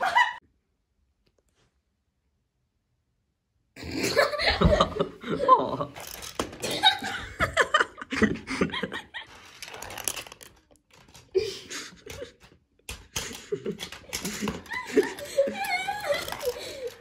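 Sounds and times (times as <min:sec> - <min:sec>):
person laughing: 0:00.0 - 0:00.4, 0:03.8 - 0:09.6, 0:11.3 - 0:12.5, 0:13.1 - 0:17.0
marbles rolling on plastic track: 0:06.0 - 0:06.7, 0:09.3 - 0:11.4, 0:13.2 - 0:17.0.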